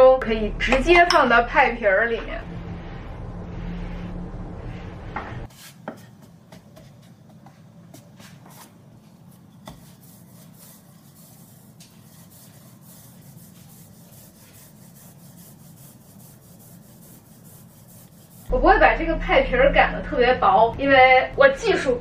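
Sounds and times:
hand sweeping flour on wood: 5.4s - 5.8s, 8.1s - 18.5s
rolling pin rolling dough: 5.4s - 18.5s.

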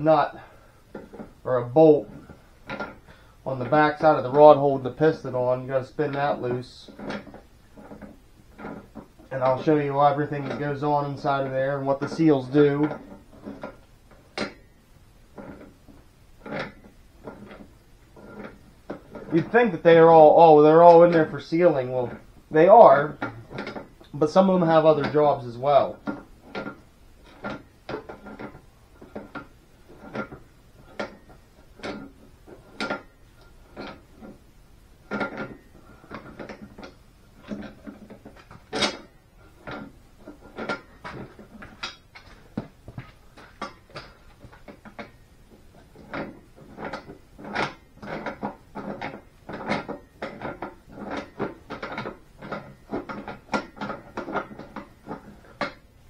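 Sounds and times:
metallic clicks and knocks: 23.1s - 34.4s, 35.1s - 55.9s.

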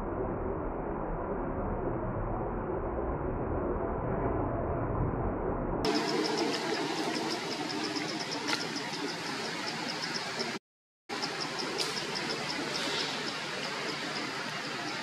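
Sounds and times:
constant outdoor hiss: 5.9s - 15.0s
insect chirping: 5.9s - 15.0s.

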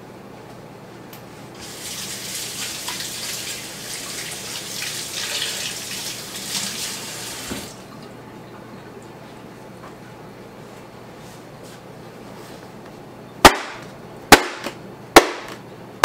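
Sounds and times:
faucet running into sink: 1.6s - 8.1s.

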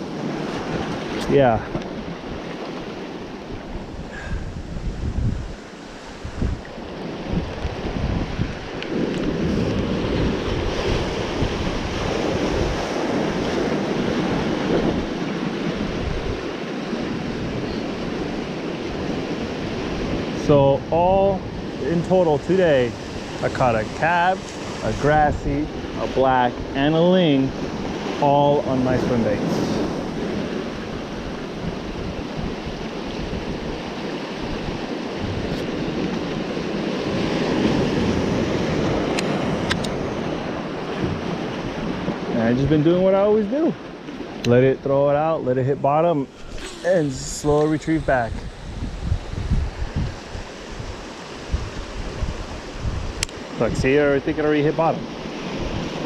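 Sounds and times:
ocean surf washing over rocks: 0.0s - 56.0s
wind buffeting microphone: 0.0s - 56.0s
surf breaking over rocks: 32.5s - 56.0s.

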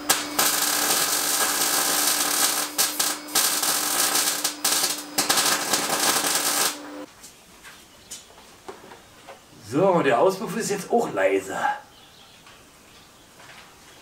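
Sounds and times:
loud hiss: 0.0s - 7.1s
power tool whining: 0.0s - 7.1s.

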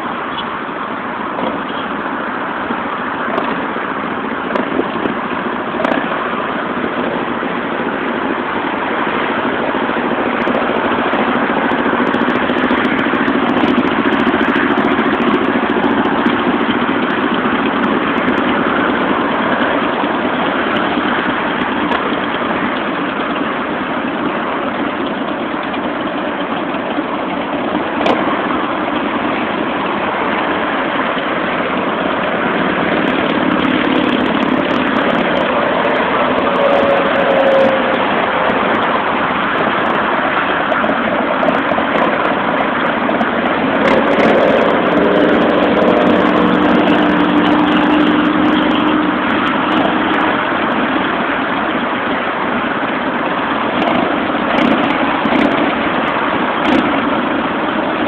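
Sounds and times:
motorcycles riding past: 31.7s - 51.0s.

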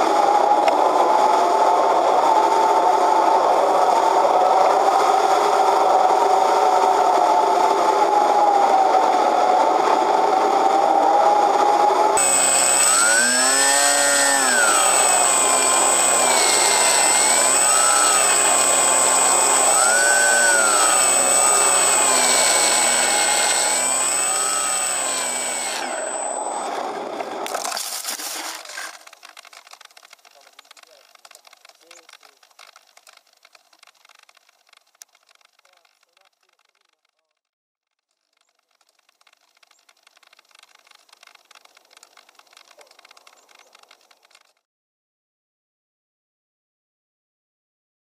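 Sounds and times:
electric motor and propeller drone: 0.0s - 29.1s
steady high whine: 12.0s - 27.4s.

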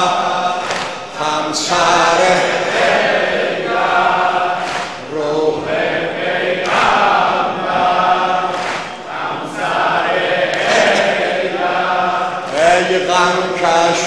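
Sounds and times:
crowd of men chanting in unison: 0.0s - 14.0s
collective chest-beating slaps: 0.6s - 1.0s, 4.6s - 5.0s, 6.6s - 7.2s, 8.5s - 9.0s, 10.5s - 11.3s.

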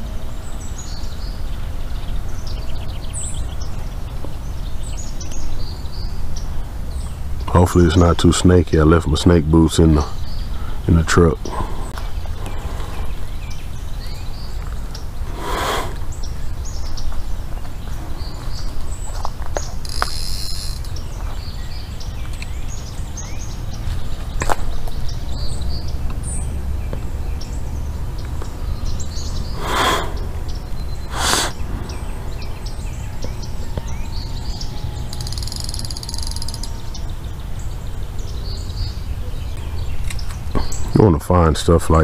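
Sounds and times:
birds chirping and calling: 0.0s - 42.0s
steady low rumble: 24.2s - 40.6s.

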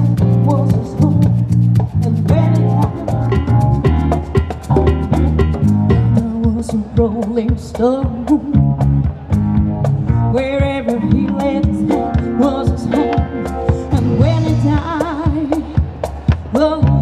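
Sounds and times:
woman singing into microphone: 0.0s - 3.5s, 6.0s - 8.8s, 10.3s - 17.0s
live band playing: 0.0s - 17.0s.

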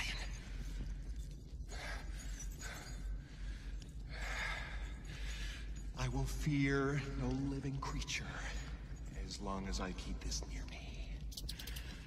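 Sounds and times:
steady low hum: 0.0s - 12.0s
man breathing heavily: 0.5s - 6.0s.

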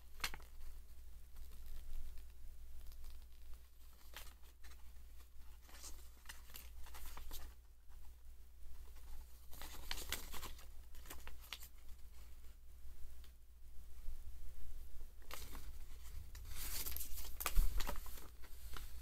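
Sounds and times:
paper leaflet rustling: 1.4s - 7.6s, 8.8s - 12.4s, 15.2s - 19.0s.

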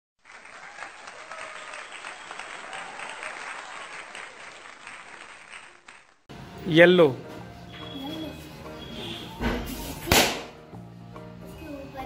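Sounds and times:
crowd applauding: 0.2s - 6.3s.

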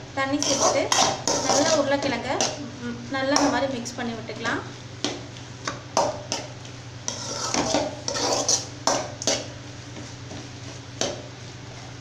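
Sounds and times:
spoon scraping metal pan: 0.4s - 2.6s, 7.1s - 9.5s.

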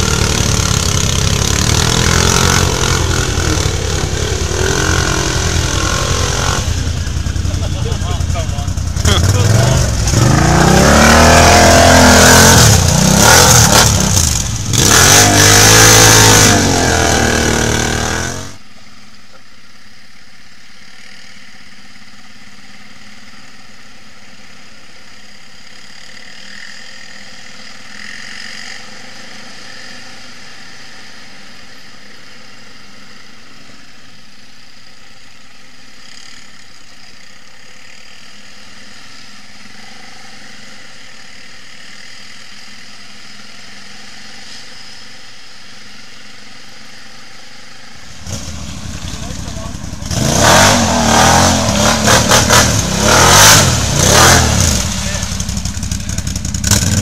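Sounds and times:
quad engine revving hard: 0.0s - 18.6s, 48.2s - 57.0s
quad engines droning: 0.0s - 19.5s, 20.8s - 57.0s.

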